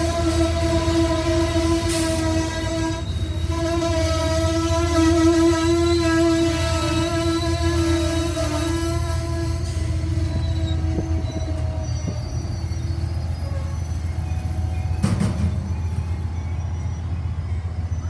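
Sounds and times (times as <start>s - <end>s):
train rumbling on rails: 0.0s - 18.0s
train wheels clattering: 9.8s - 16.6s.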